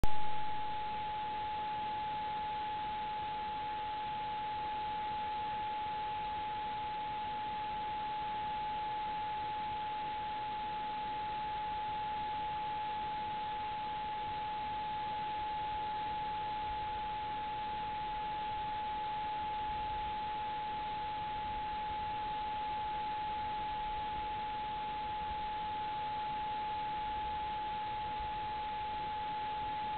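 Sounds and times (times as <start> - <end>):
high-pitched electronic whine: 0.0 - 2.7.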